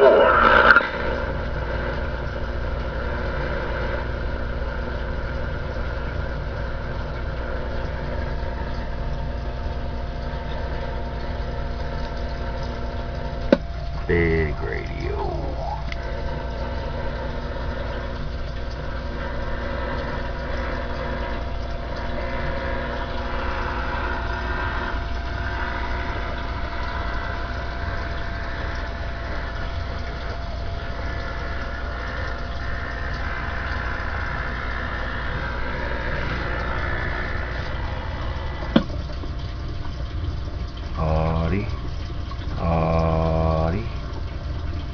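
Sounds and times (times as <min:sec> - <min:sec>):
radio static hiss: 0:00.0 - 0:01.0, 0:14.0 - 0:16.0
electrical hum: 0:00.0 - 0:44.9.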